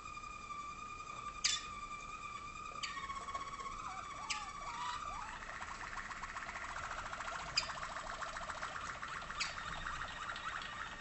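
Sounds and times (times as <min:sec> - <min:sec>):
canary rolling trill: 0:00.1 - 0:11.0
canary whistled note: 0:00.6 - 0:05.4.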